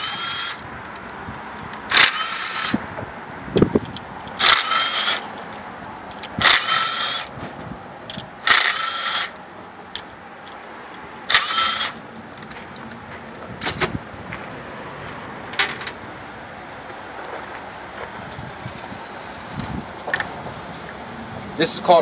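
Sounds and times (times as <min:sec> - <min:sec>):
impact driver bursts: 0:00.0 - 0:00.6, 0:01.9 - 0:02.8, 0:04.4 - 0:05.2, 0:06.4 - 0:07.3, 0:08.4 - 0:09.4, 0:11.3 - 0:12.0.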